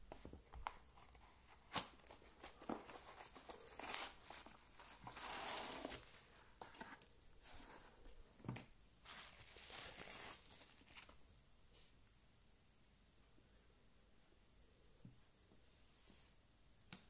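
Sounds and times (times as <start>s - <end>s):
bubble wrap crinkling: 0.1s - 8.0s, 9.0s - 11.2s.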